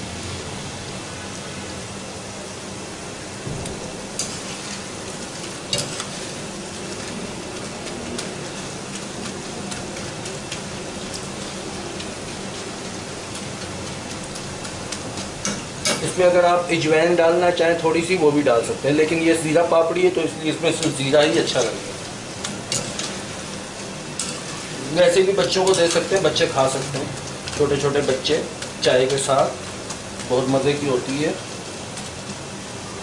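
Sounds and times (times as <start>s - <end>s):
crackers sizzling in hot oil: 0.0s - 33.0s
wire skimmer clinking on pan: 22.4s - 23.3s.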